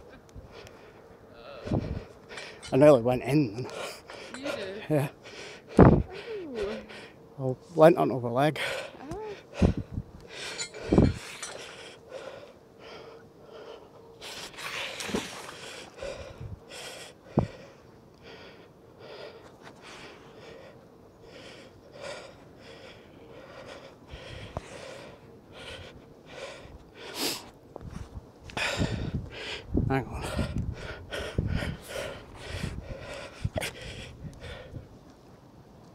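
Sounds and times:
person breathing hard: 0:08.6 - 0:27.5, 0:28.5 - 0:34.8.

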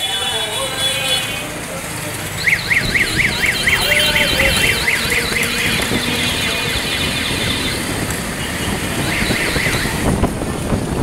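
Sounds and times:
street traffic noise: 0:00.0 - 0:11.0
warbling electronic alarm tone: 0:02.4 - 0:05.7.

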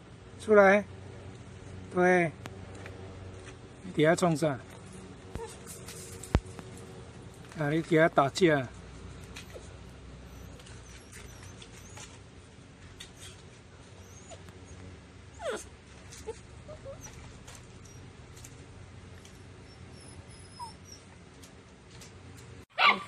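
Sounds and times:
puppy yelping: 0:05.3 - 0:05.8, 0:09.3 - 0:12.2, 0:13.0 - 0:18.2, 0:19.6 - 0:21.1, 0:22.7 - 0:23.0
puppies whimpering and yipping: 0:09.3 - 0:12.3, 0:13.0 - 0:18.2, 0:19.4 - 0:21.2
puppy squeaks: 0:09.4 - 0:12.2, 0:13.0 - 0:14.8, 0:15.4 - 0:18.1, 0:19.6 - 0:21.1.

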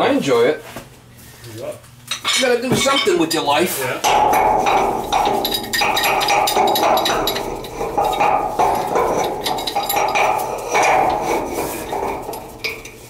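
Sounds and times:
pipe wrench clinking on metal: 0:02.1 - 0:13.0
pipe scraping in threads: 0:03.3 - 0:13.0.

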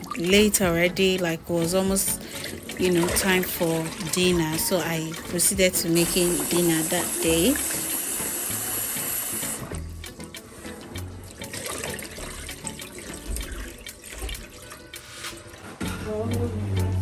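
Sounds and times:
water sloshing and pouring: 0:00.0 - 0:08.3, 0:10.7 - 0:15.8.

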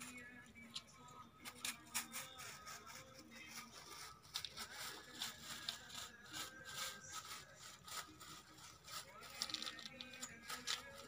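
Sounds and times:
plastic bag crinkling: 0:08.5 - 0:11.0.

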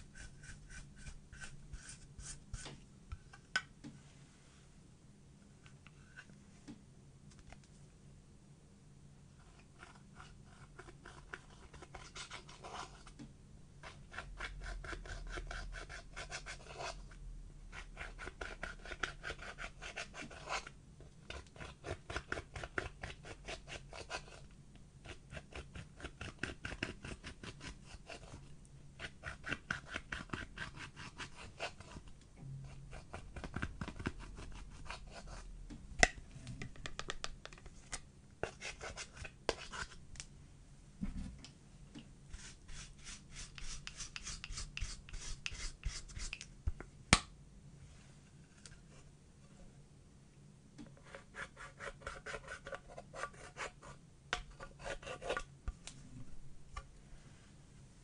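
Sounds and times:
tool scratching eyeshadow: 0:42.4 - 0:46.4.

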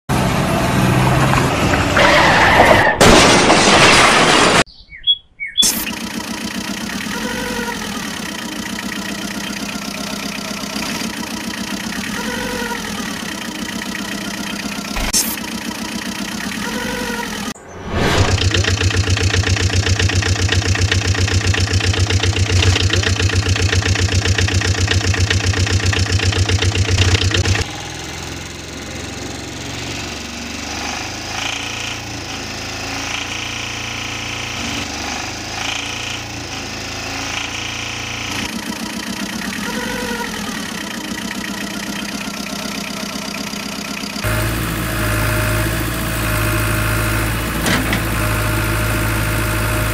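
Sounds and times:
truck engine running: 0:05.6 - 0:49.9.

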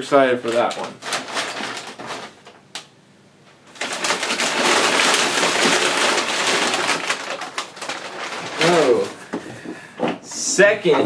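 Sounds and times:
paper crumpling rustle: 0:00.4 - 0:02.6, 0:03.7 - 0:09.2.

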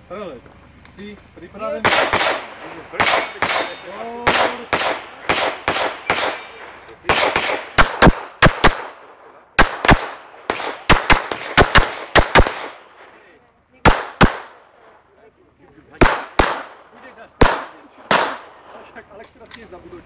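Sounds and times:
handgun shots with echo: 0:01.8 - 0:08.9, 0:09.6 - 0:12.8, 0:13.9 - 0:14.6, 0:16.0 - 0:16.7, 0:17.4 - 0:18.5.

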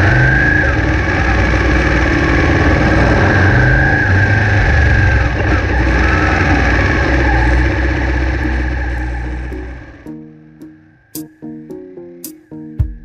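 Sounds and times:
v-twin motorcycle engine running: 0:00.0 - 0:10.0.

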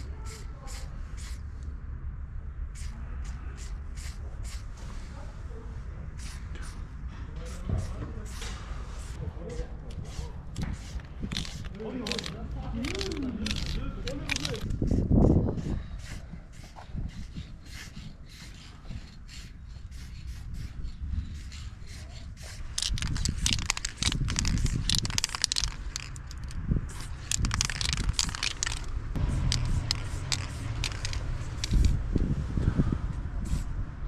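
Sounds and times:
spray can hissing: 0:00.3 - 0:01.4, 0:03.6 - 0:04.6, 0:10.0 - 0:14.8, 0:16.0 - 0:32.0.

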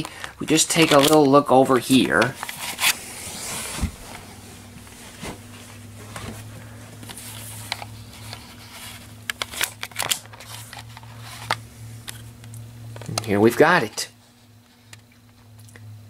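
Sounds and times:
low steady hum: 0:00.0 - 0:16.0
camera handling clicks and rustles: 0:00.7 - 0:01.3, 0:07.0 - 0:12.3.

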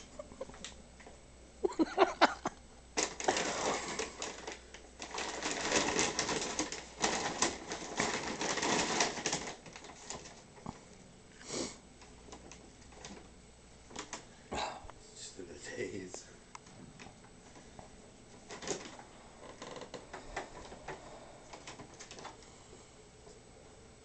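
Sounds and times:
bag rustling and crackling: 0:03.0 - 0:10.8, 0:18.4 - 0:22.4.

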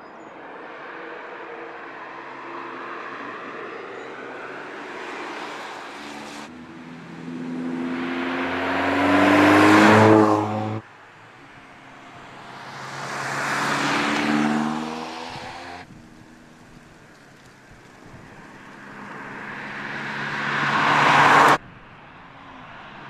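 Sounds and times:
car engine accelerating past: 0:04.4 - 0:10.8, 0:12.4 - 0:17.0, 0:18.2 - 0:21.6.

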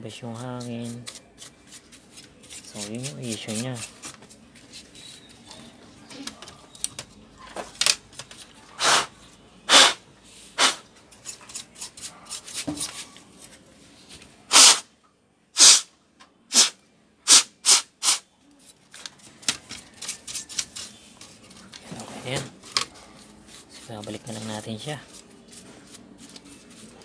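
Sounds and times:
sharp puffs of breath: 0:09.7 - 0:10.8.

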